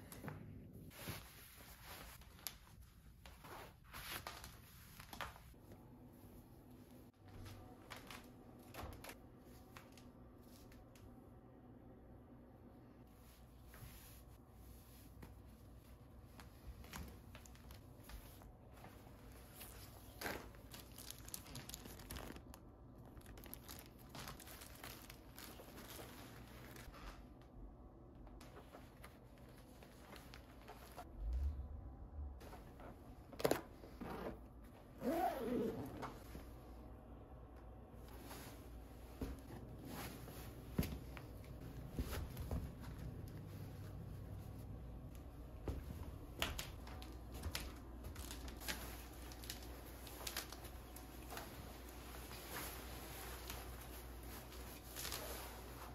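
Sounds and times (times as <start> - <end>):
crinkling and rustling of items: 0.0 - 11.2, 13.1 - 31.8, 37.4 - 55.9
coat rustling: 46.8 - 55.9.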